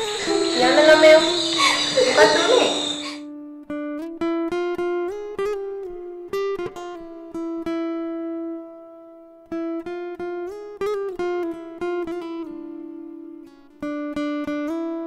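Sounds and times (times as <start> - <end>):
solo guitar plucking melody: 3.3 - 15.0.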